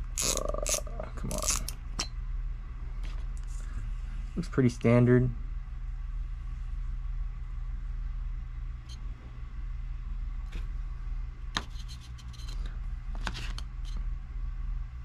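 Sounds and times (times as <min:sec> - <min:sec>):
low hum: 0:00.0 - 0:15.0
fishing reel clicking: 0:00.2 - 0:01.7.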